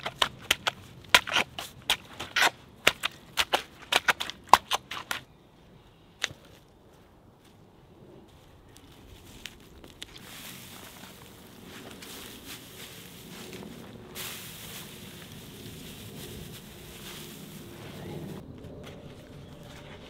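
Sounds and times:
wooden pole pounding wet mud: 0.0s - 5.2s.

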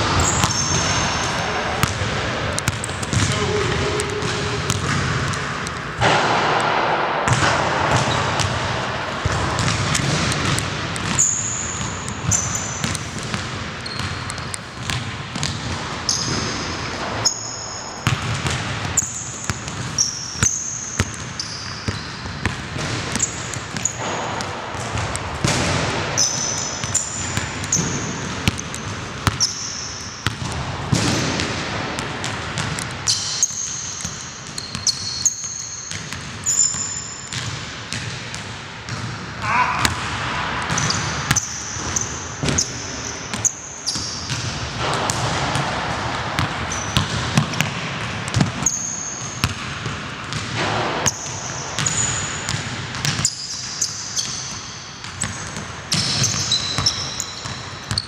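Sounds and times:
sneakers squeaking: 0.0s - 58.0s
basketball bouncing on hardwood: 0.1s - 16.6s.

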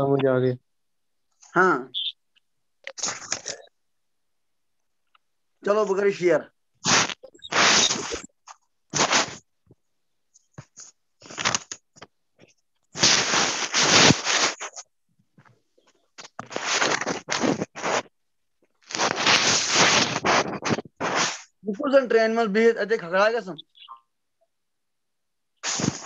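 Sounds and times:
scraping crackling noise: 2.8s - 3.7s, 6.8s - 9.5s, 10.6s - 15.5s, 16.2s - 21.6s, 25.6s - 26.0s.

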